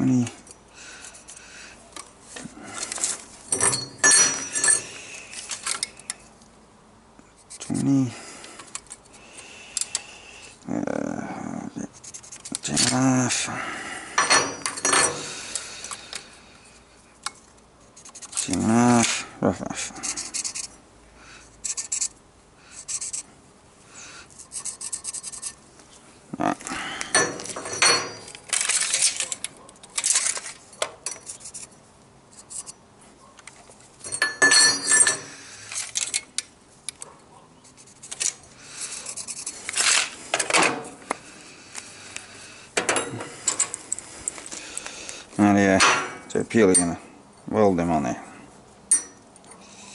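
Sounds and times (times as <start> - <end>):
tools scraping and tapping on steel: 2.0 - 6.2, 14.1 - 16.3, 27.0 - 32.8, 33.4 - 41.9, 42.8 - 44.9, 45.6 - 47.0, 48.9 - 49.9
ringing metal clinks: 3.5 - 5.0, 27.1 - 28.4, 34.0 - 35.3, 48.9 - 49.2.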